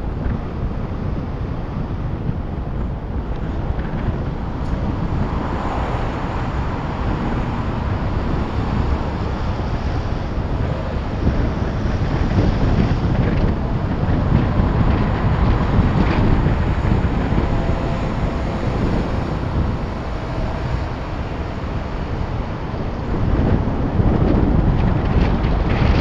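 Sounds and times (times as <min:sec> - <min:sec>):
road and engine noise: 0:00.0 - 0:26.0
wind buffeting microphone: 0:00.0 - 0:26.0.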